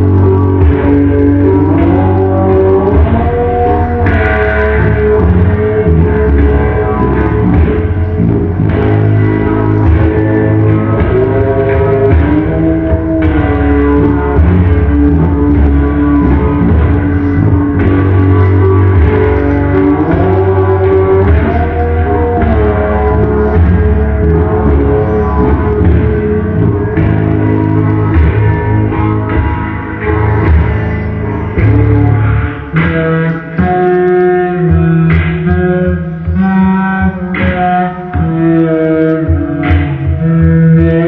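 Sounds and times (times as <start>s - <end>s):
rock music with guitar: 0.0s - 41.0s.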